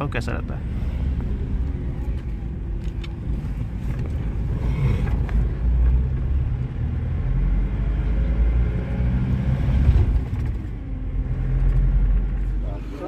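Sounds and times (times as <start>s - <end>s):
vehicle engine and tyres rumbling: 0.0s - 13.0s.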